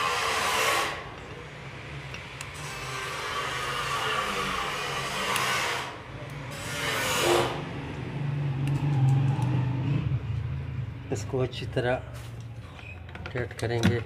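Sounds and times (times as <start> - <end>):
vehicle passing by: 5.8 - 12.7.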